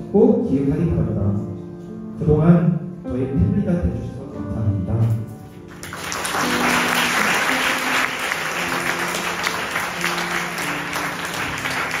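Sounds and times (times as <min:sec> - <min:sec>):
congregation applauding: 0:05.7 - 0:12.0.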